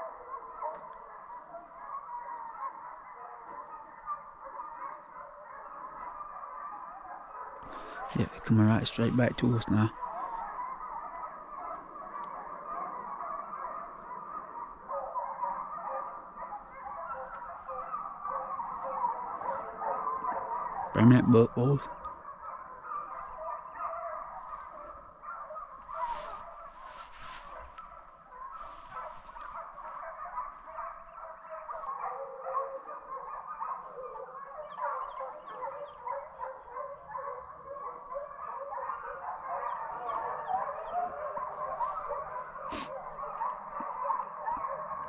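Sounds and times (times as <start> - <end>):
hounds baying: 0.0 - 45.0.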